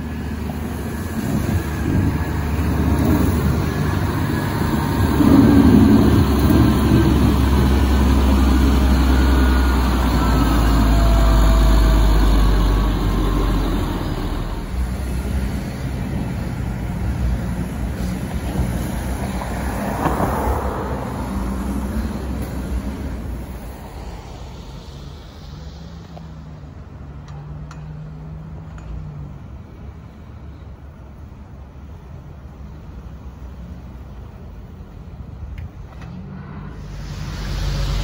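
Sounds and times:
distant machinery: 0:00.0 - 0:27.9
motor grader diesel engine: 0:00.0 - 0:38.0
passing traffic: 0:00.0 - 0:38.0.

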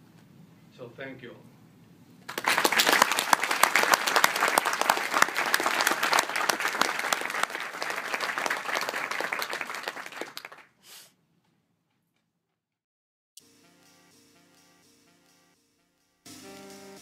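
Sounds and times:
audience applauding: 0:02.3 - 0:10.7
person clapping near microphone: 0:02.3 - 0:10.7.

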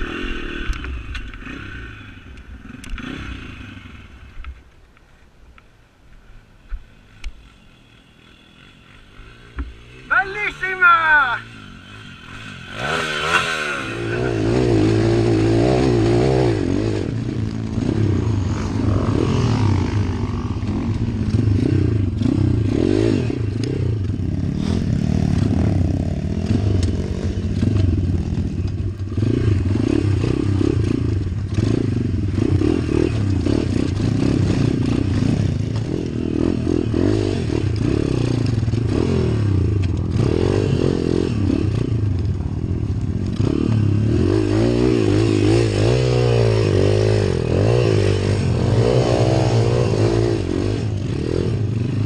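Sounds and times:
motorbike engine revving: 0:00.0 - 0:04.3, 0:08.0 - 0:52.0.

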